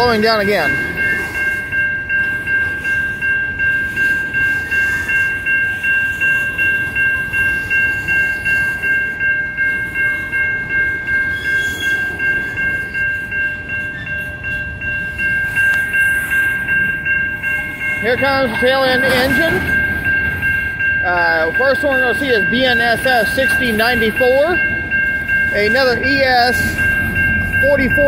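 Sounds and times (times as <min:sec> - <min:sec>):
crossing bell ringing: 0:00.0 - 0:28.0
freight cars rumbling: 0:12.0 - 0:28.0.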